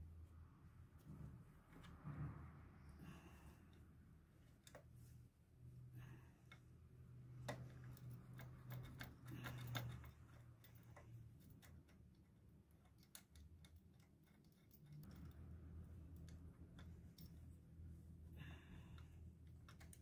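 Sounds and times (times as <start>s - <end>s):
low steady hum: 0.0s - 20.0s
hands clicking and tapping fittings: 6.4s - 17.5s, 19.0s - 20.0s.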